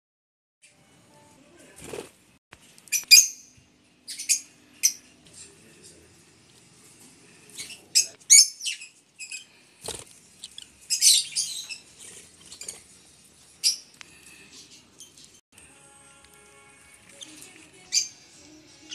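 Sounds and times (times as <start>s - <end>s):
lovebirds chirping: 2.9s - 5.1s, 7.5s - 15.4s, 17.0s - 18.9s.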